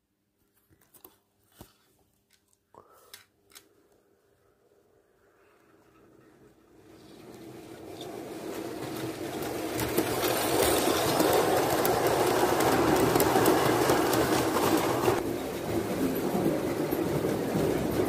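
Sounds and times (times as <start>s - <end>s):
model train rattling on track: 5.9s - 18.0s.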